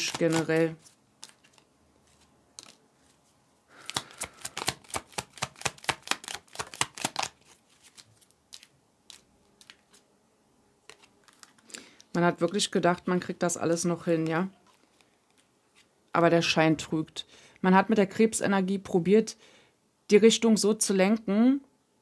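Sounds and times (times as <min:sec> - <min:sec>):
cards shuffling: 0:00.0 - 0:10.0, 0:10.8 - 0:12.8.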